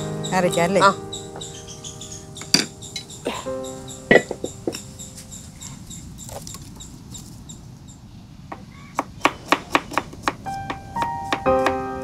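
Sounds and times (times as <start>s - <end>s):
knife chopping onion on wooden board: 9.0s - 10.4s.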